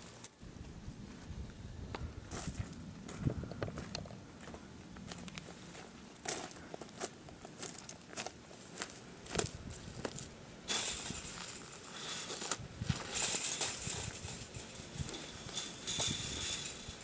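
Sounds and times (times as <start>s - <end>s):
footsteps on grass and gravel: 0.6s - 16.7s
clicks and rustles: 6.3s - 17.0s.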